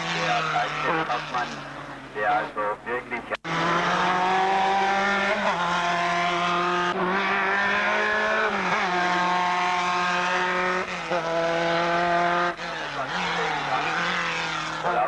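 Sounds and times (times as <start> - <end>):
racing car engine at high revs: 0.0 - 15.0.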